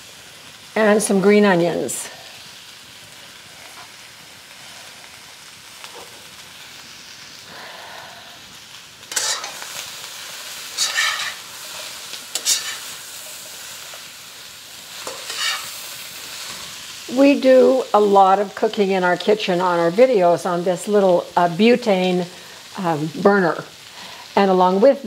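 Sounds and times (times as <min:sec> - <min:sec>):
vegetables sizzling in a wok: 0:00.0 - 0:25.0
metal spatula scraping wok: 0:09.1 - 0:14.1, 0:14.9 - 0:16.8.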